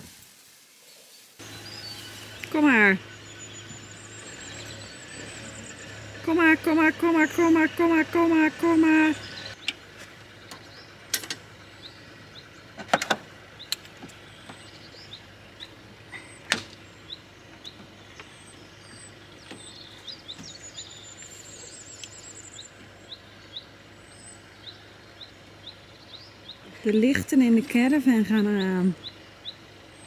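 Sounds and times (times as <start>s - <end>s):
bird chirping: 0.8s - 30.0s.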